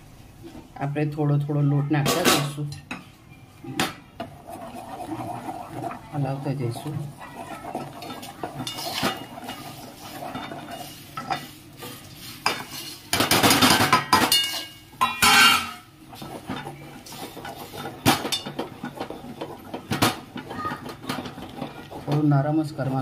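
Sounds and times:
utensil scraping a pot: 0:03.8 - 0:23.0.

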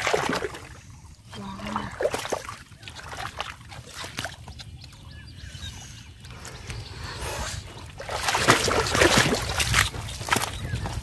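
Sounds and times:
muddy water splashing: 0:00.0 - 0:05.3, 0:06.2 - 0:11.0.

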